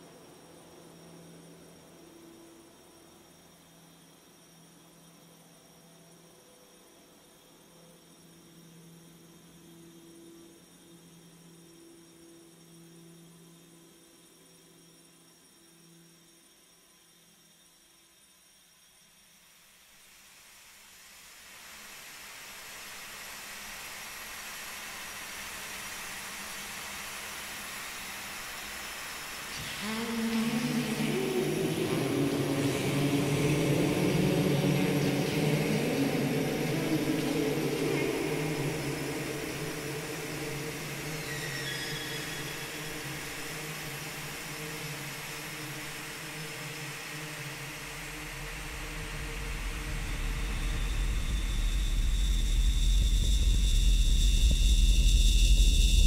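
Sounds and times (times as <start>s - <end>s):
steady rushing hiss: 0.0s - 16.6s, 19.2s - 56.0s
deep low rumble: 48.2s - 56.0s.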